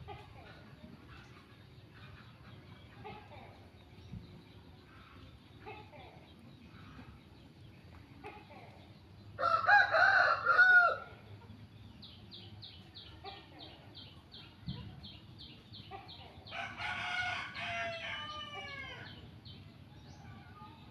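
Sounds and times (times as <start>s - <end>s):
rooster crowing: 9.4s - 11.1s, 16.5s - 19.1s.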